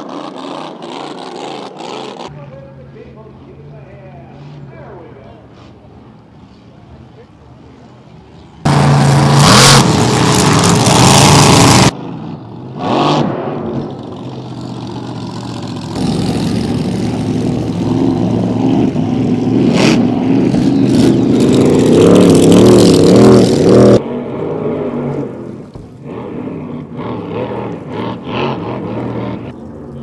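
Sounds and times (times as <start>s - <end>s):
racing boat engine: 8.6s - 13.1s, 13.8s - 30.0s.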